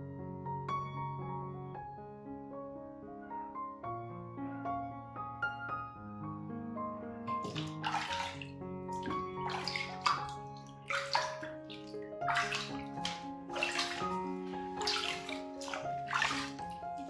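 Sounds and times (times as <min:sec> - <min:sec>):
soft piano music: 0:00.0 - 0:17.0
water splashing by hand: 0:07.4 - 0:17.0.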